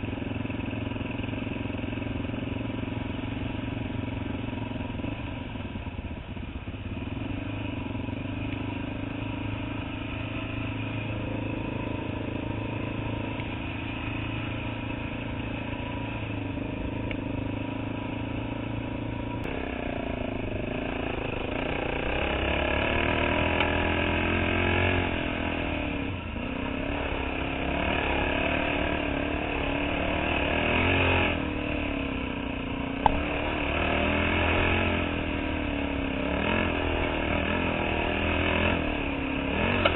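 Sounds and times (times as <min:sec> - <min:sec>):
dirt bike engine revving: 0:09.0 - 0:32.4, 0:33.0 - 0:39.9.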